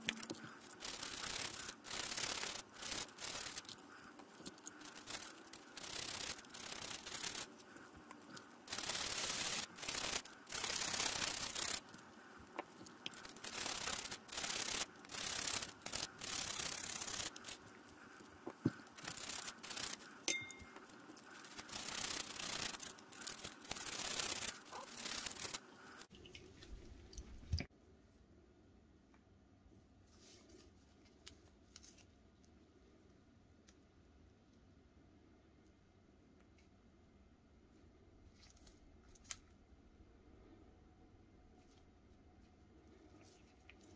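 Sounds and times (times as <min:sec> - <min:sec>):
toothbrush scrubbing in soapy water: 0:00.0 - 0:26.7.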